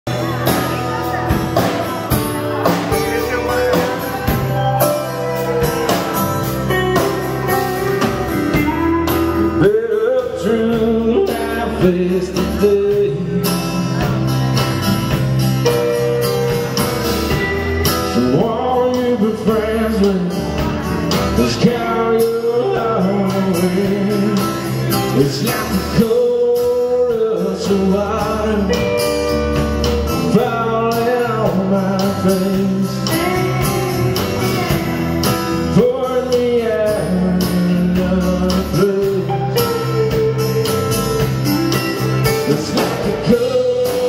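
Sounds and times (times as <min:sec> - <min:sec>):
bass guitar: 0:00.0 - 0:44.0
drums: 0:00.0 - 0:44.0
bending melodic line: 0:00.1 - 0:19.2
acoustic guitar: 0:00.1 - 0:44.0
electric guitar: 0:00.1 - 0:44.0.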